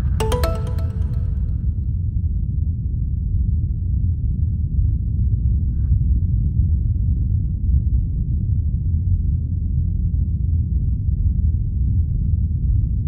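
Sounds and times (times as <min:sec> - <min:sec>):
faint higher tone: 0:00.1 - 0:01.7.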